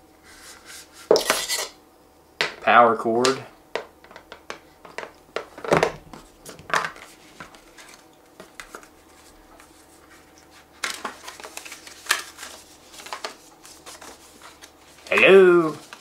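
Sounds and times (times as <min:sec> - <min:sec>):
cardboard packet handled: 0:07.0 - 0:16.0.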